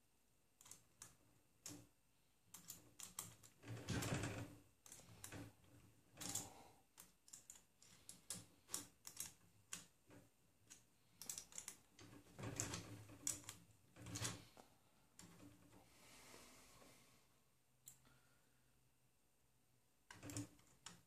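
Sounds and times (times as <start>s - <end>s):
hex key clicking on bolts: 2.5s - 3.5s, 6.2s - 9.9s, 10.6s - 12.0s.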